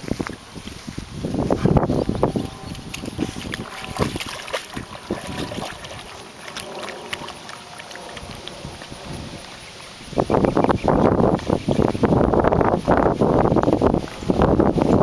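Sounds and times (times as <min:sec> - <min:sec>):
wind on microphone: 0:00.0 - 0:15.0
dogs splashing in water: 0:01.8 - 0:10.5.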